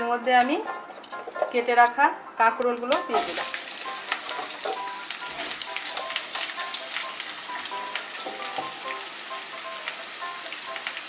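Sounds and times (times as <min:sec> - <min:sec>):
light background melody: 0:00.0 - 0:11.0
vegetables sizzling in hot oil: 0:03.0 - 0:11.0.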